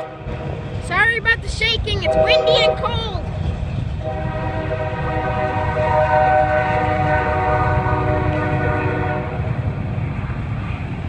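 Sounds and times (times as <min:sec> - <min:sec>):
freight train rumbling past: 0:00.0 - 0:11.0
locomotive horn blast: 0:04.0 - 0:09.5.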